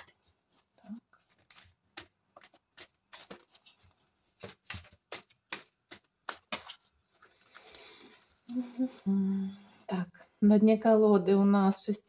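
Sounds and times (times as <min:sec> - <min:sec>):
cards being shuffled: 0:00.5 - 0:08.4.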